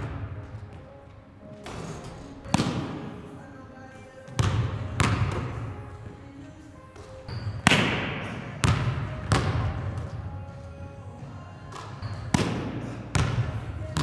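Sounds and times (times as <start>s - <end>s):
basketball bouncing on wooden floor: 4.3s - 5.7s, 7.6s - 10.2s, 11.7s - 14.0s.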